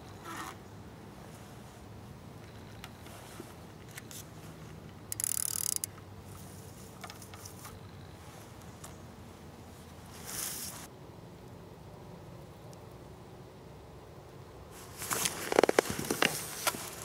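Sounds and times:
fishing tackle light clicks: 5.1s - 6.0s.

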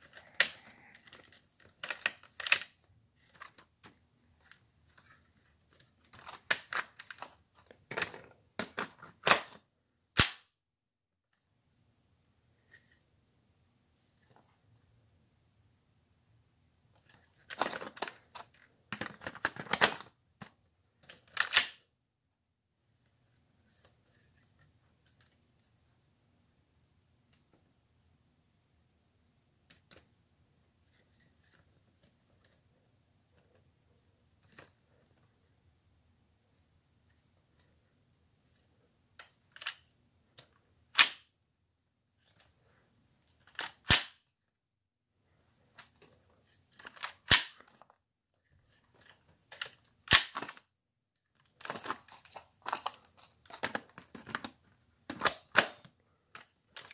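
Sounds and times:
plastic toy clicking and rattling: 0.0s - 9.6s, 38.6s - 41.3s, 51.4s - 56.9s
toy gun sharp snaps: 10.2s - 10.5s, 41.0s - 41.3s, 43.8s - 44.2s, 47.2s - 47.6s, 50.1s - 50.6s.

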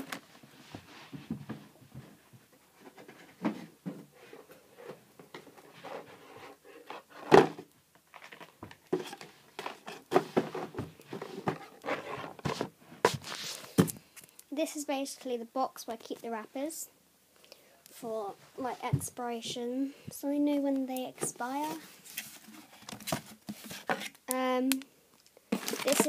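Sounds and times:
knocks thumps and rustles of handling: 0.0s - 6.1s, 7.2s - 14.1s, 21.2s - 24.2s.

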